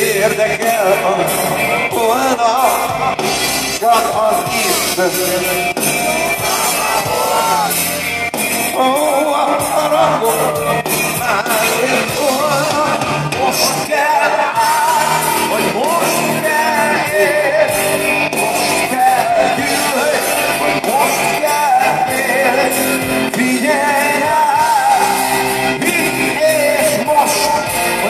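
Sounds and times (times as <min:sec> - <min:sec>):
live rock band: 0:00.0 - 0:28.0.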